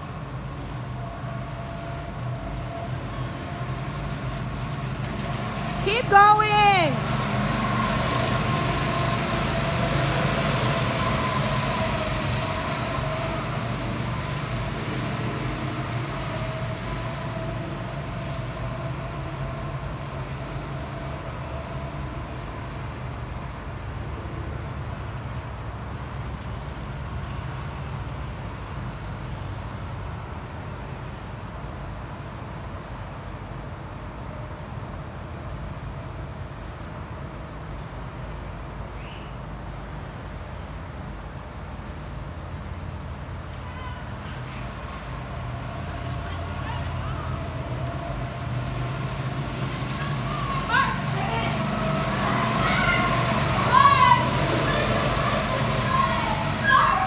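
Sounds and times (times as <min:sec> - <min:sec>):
go-kart engines running: 0:00.0 - 0:23.4, 0:42.7 - 0:57.0.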